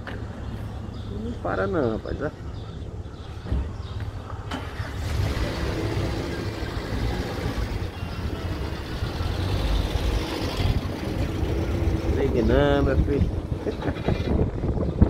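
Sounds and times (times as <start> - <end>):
vehicle engine running: 4.7 - 14.0.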